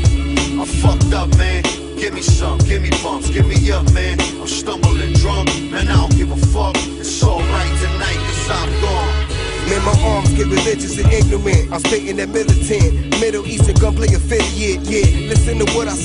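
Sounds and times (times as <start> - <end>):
heavy bass: 0.0 - 16.0
rapping over a beat: 0.0 - 16.0.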